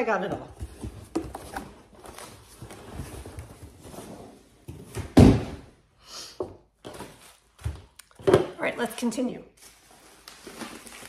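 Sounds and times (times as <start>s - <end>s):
box thumping down: 4.7s - 5.7s
cardboard box and packing peanuts rustling: 9.6s - 11.0s.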